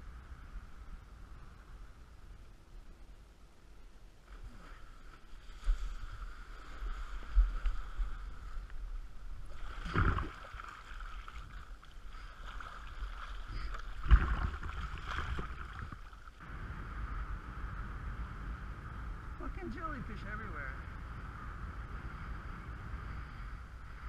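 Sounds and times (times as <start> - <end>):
water rushing and splashing: 9.4 - 16.4.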